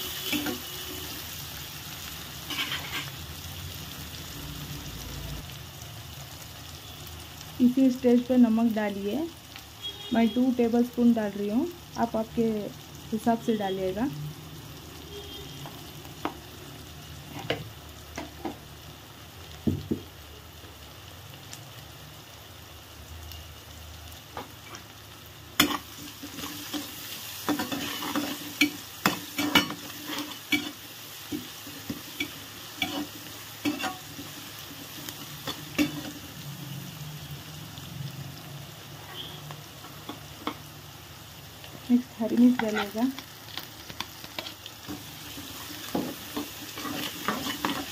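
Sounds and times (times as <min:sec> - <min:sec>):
onions sizzling in hot oil: 0:00.0 - 0:47.9
spatula scraping a pan: 0:02.4 - 0:03.2, 0:25.6 - 0:36.2, 0:42.5 - 0:43.0, 0:44.3 - 0:47.9.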